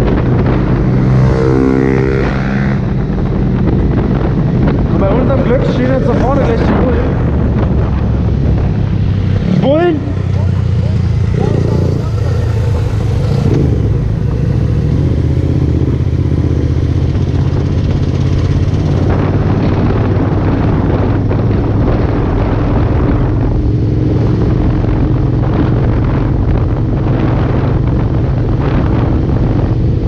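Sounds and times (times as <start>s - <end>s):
motorcycle engine running: 0.0s - 30.0s
wind and road rush: 0.0s - 30.0s.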